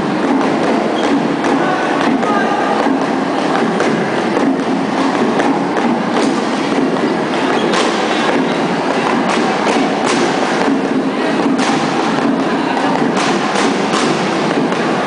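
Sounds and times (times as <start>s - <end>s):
sharp hits claps or stomps: 0.0s - 15.0s.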